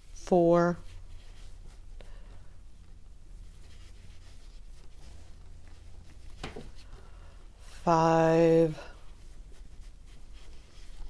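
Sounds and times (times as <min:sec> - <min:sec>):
low steady hum: 0:00.0 - 0:11.0
yarn rubbing on crochet hook: 0:02.8 - 0:07.0, 0:07.6 - 0:11.0.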